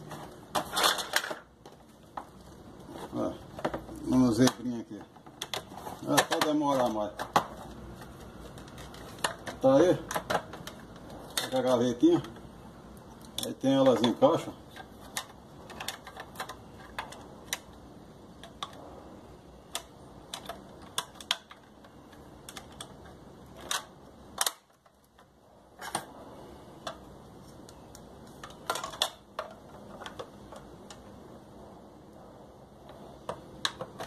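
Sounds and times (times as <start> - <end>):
plastic casing clicks and knocks: 3.5 - 7.6, 8.5 - 11.6.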